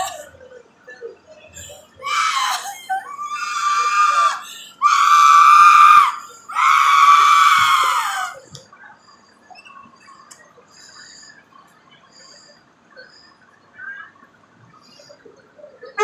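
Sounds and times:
woman screaming: 1.6 - 8.5.

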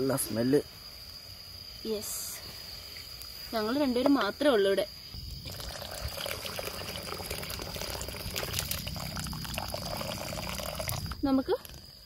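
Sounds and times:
broth pouring and splashing: 5.4 - 12.0.

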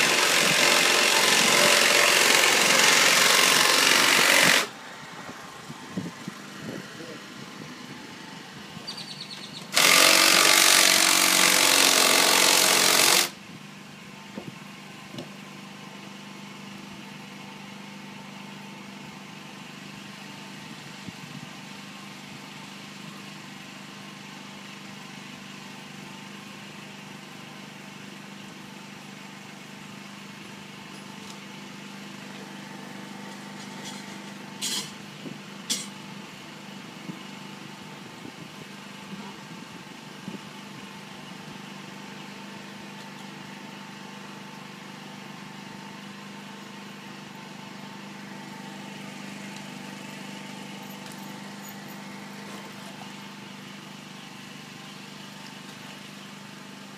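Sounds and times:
cordless drill running: 0.0 - 4.8, 9.6 - 13.4.

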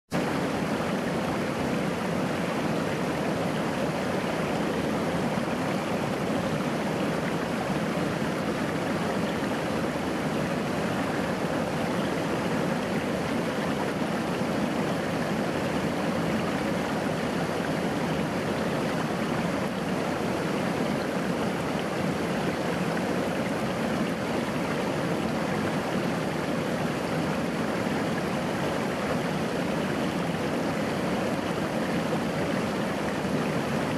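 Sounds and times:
stream splashing over rocks: 0.2 - 33.9.

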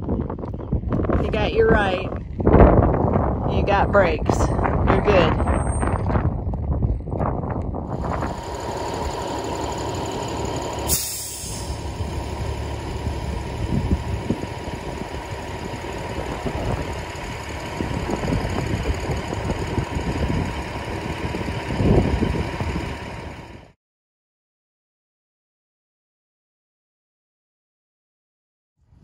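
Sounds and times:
diesel truck engine idling: 7.9 - 23.7.

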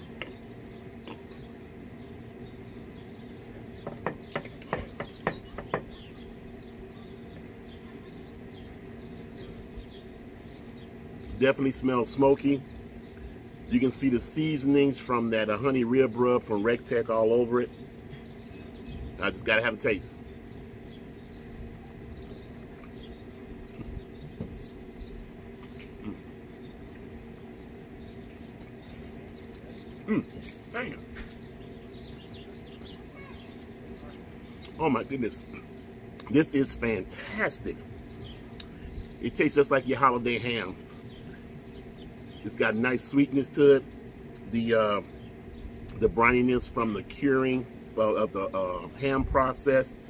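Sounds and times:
steady hum: 0.0 - 50.0
faint high chirping: 27.5 - 36.7.

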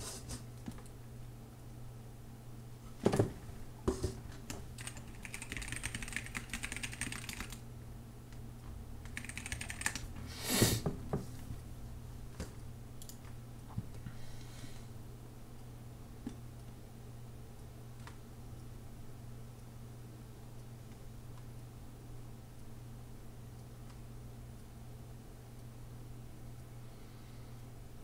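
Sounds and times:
low steady hum: 0.0 - 28.0
keyboard typing: 4.8 - 7.6, 9.0 - 10.1.

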